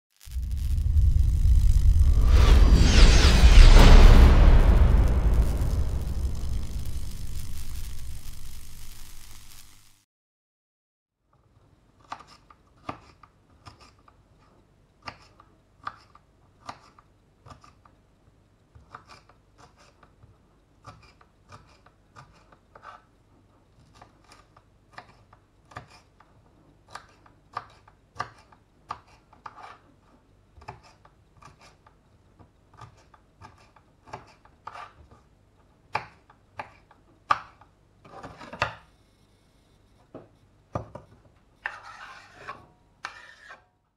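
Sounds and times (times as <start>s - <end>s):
knife scraping across board: 20.8s - 23.1s, 27.6s - 29.9s, 32.8s - 35.0s, 41.6s - 43.6s.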